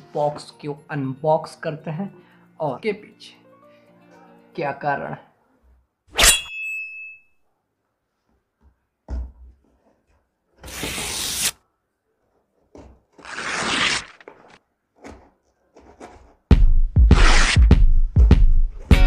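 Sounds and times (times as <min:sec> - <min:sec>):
packing tape being slit: 0:10.6 - 0:11.6, 0:13.1 - 0:14.6.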